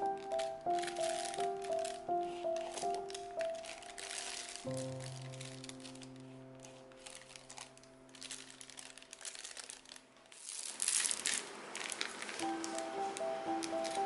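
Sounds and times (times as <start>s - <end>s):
background music note: 0.0s - 8.2s, 12.4s - 14.0s
plastic bag crinkling: 0.0s - 14.0s.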